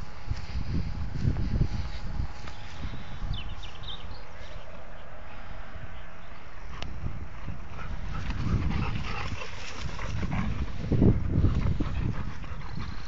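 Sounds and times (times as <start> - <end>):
dogs scuffling on grass: 0.0 - 3.7, 7.5 - 11.8.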